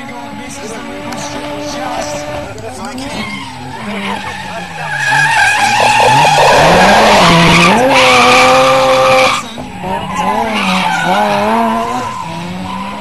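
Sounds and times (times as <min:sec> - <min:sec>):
car engine revving: 0:00.0 - 0:13.0
tyre screech: 0:03.0 - 0:13.0.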